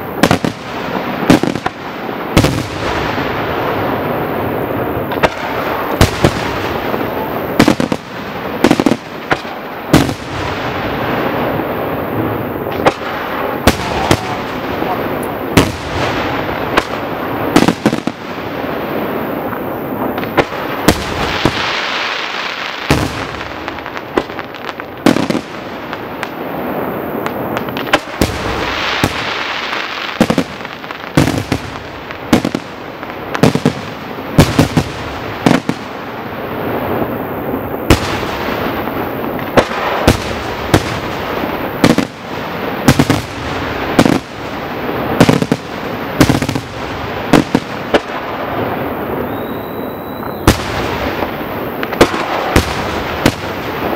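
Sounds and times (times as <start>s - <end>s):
fireworks bangs: 0.0s - 53.9s
fireworks hiss: 0.0s - 53.9s.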